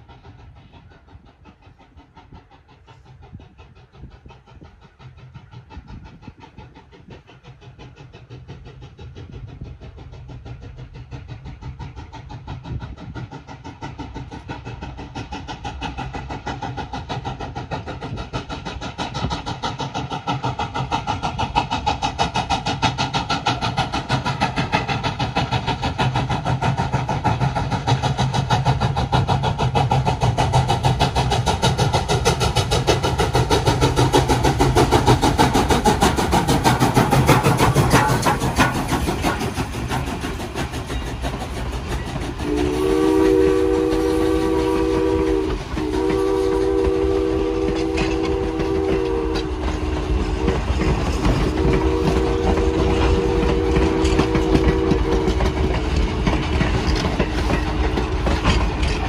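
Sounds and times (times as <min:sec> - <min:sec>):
steam locomotive running past: 0:00.0 - 0:59.0
steam whistle: 0:42.4 - 0:50.7, 0:51.4 - 0:55.8.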